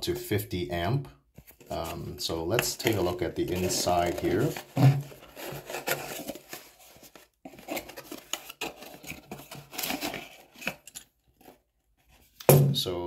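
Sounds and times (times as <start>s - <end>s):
cardboard box being opened: 2.7s - 12.2s.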